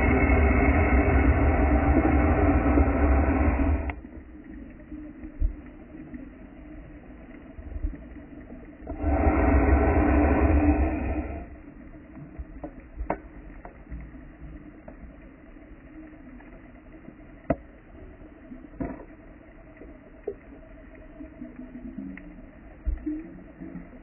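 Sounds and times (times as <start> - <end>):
quiet underwater hissing: 0.0 - 24.0
diver's exhaled bubbles rushing: 8.9 - 11.6.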